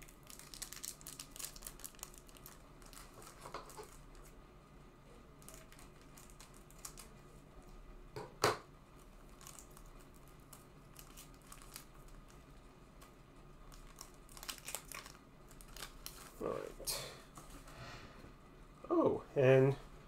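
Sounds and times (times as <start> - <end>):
wrapper crinkling and tearing: 0.0 - 4.3, 5.4 - 7.2, 9.0 - 12.4, 13.6 - 16.5.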